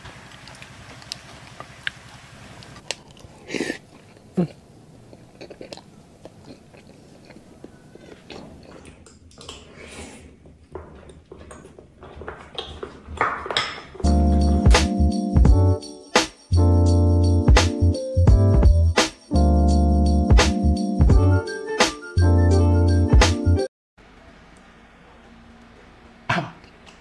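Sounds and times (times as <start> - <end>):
people chewing and biting: 0.1 - 13.5.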